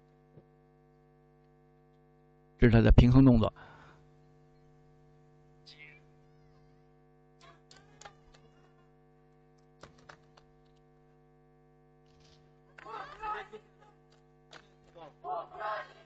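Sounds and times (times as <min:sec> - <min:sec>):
electrical hum: 0:00.0 - 0:16.0
stamps and slaps on carpet: 0:09.8 - 0:10.8.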